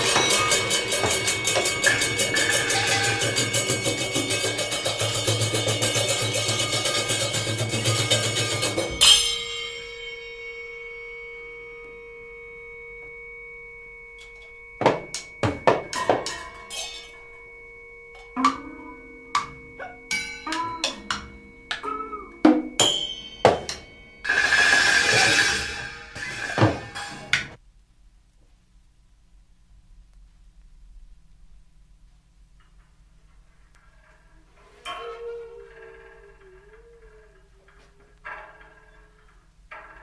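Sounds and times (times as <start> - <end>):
fast drum roll: 0.0 - 9.0, 24.2 - 27.3
scattered ringing percussion strikes: 0.0 - 27.6
steady held tones: 0.0 - 27.6, 29.9 - 40.0.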